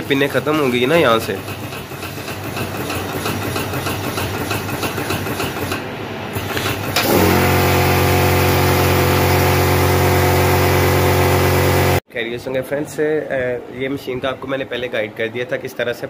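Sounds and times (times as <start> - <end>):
electric buzz of bowl feeder: 7.0 - 12.0.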